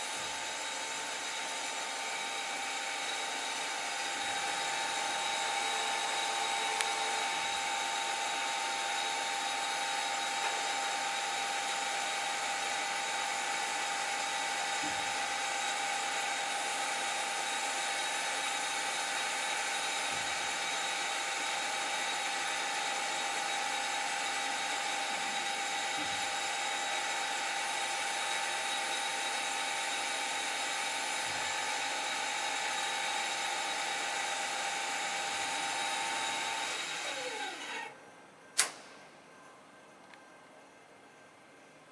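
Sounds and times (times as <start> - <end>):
grinding wheel whining: 0.0 - 38.0.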